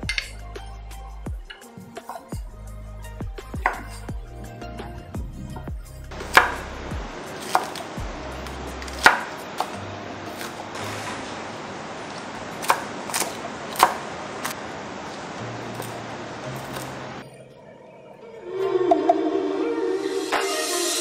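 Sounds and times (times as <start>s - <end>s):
cleaver chopping on wooden board: 3.6s - 3.9s, 6.2s - 6.6s, 7.4s - 7.8s, 8.9s - 9.7s.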